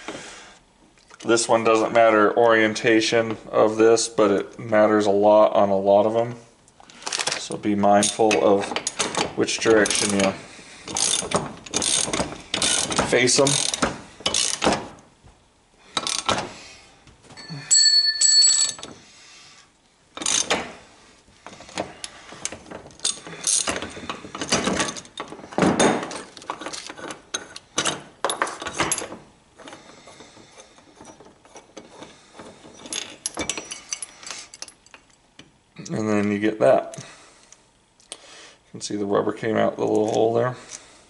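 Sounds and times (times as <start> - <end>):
ratchet clicks: 10.9 - 14.6.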